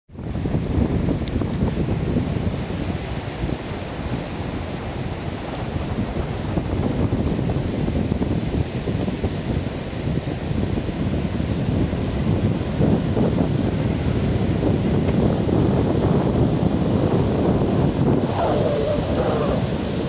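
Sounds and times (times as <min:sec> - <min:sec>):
wind buffeting microphone: 0:00.1 - 0:20.0
sea surf breaking: 0:17.0 - 0:20.0.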